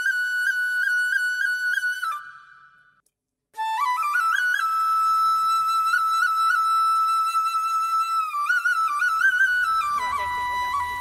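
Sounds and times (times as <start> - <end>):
solo flute melody: 0.0 - 3.0, 3.6 - 11.0.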